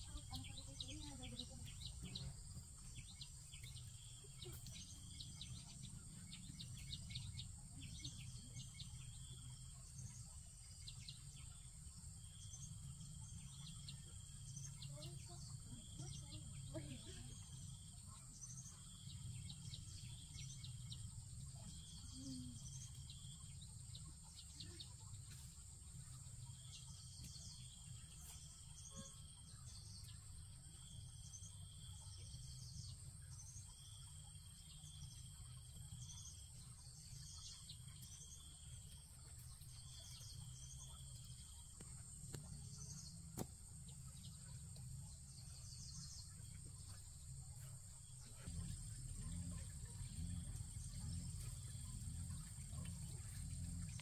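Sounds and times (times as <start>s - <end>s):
high-pitched insect whine: 26.0s - 54.0s
low rumble: 42.2s - 54.0s.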